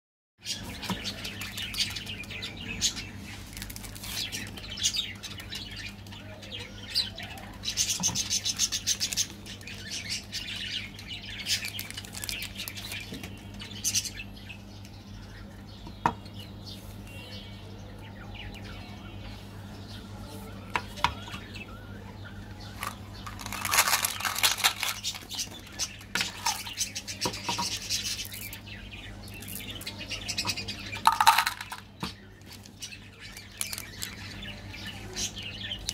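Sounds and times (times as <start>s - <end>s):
candy wrappers crinkling and tearing: 3.4s - 4.6s, 11.4s - 13.0s, 22.7s - 26.8s, 32.4s - 34.4s
candy rattling out of plastic bottle: 11.5s - 12.8s, 22.8s - 26.8s, 31.0s - 31.9s, 33.6s - 34.2s.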